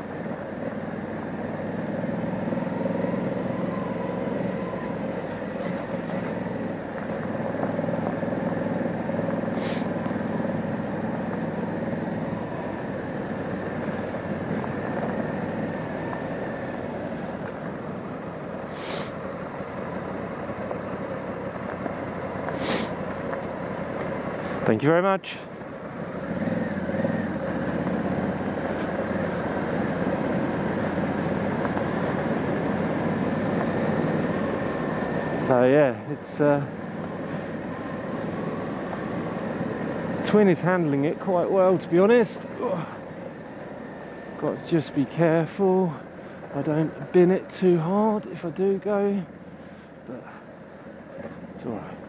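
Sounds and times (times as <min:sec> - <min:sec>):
motorcycle engine running: 0:00.0 - 0:44.8
wind and riding noise: 0:00.0 - 0:52.0
brief high hisses: 0:09.6 - 0:09.9, 0:18.7 - 0:19.2, 0:22.6 - 0:23.0.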